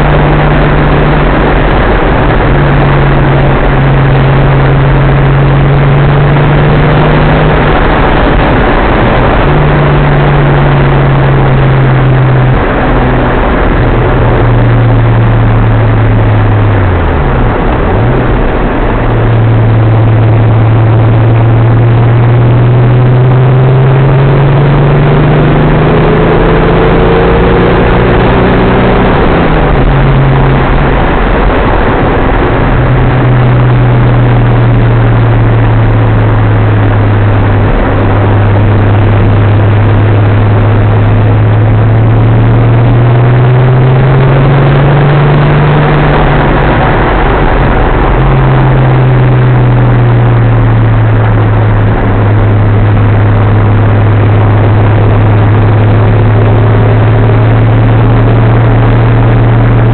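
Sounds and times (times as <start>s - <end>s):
car engine drone in cabin: 0.0s - 59.9s
road and wind noise: 0.0s - 59.9s.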